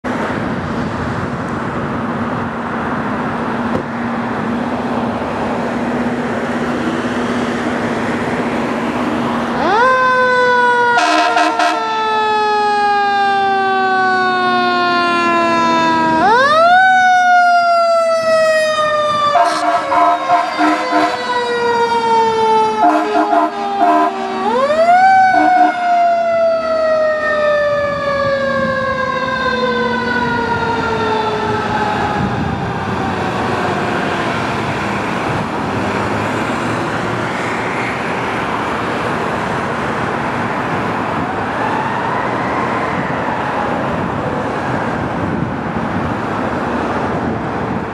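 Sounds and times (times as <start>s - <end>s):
road traffic noise: 0.0s - 47.9s
fire engine siren winding: 9.4s - 34.4s
short horn blasts: 11.0s - 11.8s, 19.4s - 21.2s, 22.8s - 24.6s, 25.3s - 25.8s.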